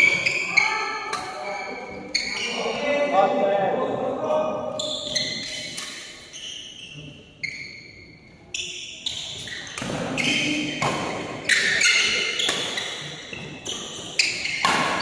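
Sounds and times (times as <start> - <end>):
shoe squeaks: 0.0 - 3.0, 4.8 - 15.0
racket hitting shuttlecock: 1.0 - 1.4, 9.7 - 15.0.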